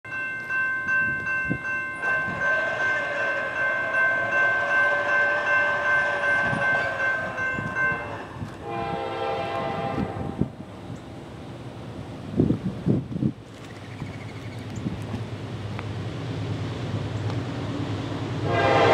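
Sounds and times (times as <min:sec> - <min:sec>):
locomotive air horn: 0:02.0 - 0:10.6, 0:18.4 - 0:18.9
lower-pitched horn blast: 0:02.0 - 0:10.6, 0:18.4 - 0:18.9.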